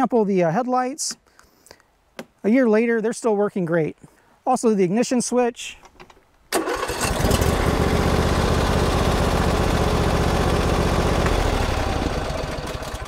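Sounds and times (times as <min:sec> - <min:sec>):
garden tractor engine idling: 0:06.5 - 0:13.0.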